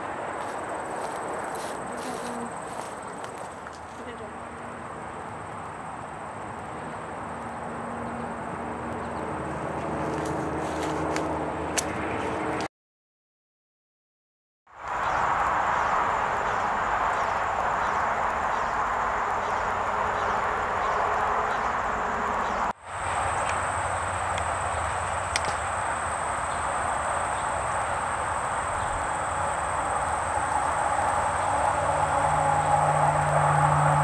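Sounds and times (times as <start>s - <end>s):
outdoor background hiss: 0.0s - 8.6s, 14.8s - 34.0s
high insect trill: 0.0s - 11.3s, 14.8s - 34.0s
sharp tick: 25.3s - 25.6s.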